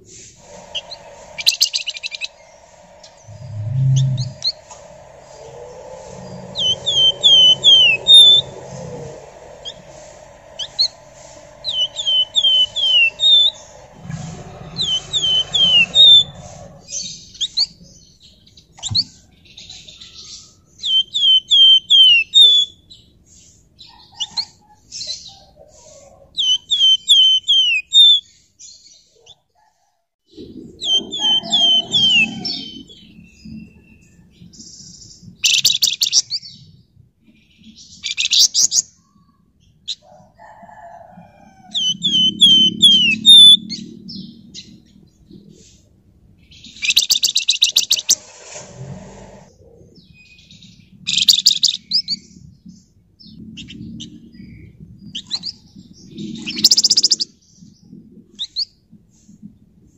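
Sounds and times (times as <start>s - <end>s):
harsh hissy bird calls: 0.0s - 17.9s, 30.8s - 33.4s, 41.7s - 44.8s, 46.5s - 49.4s, 56.2s - 57.3s.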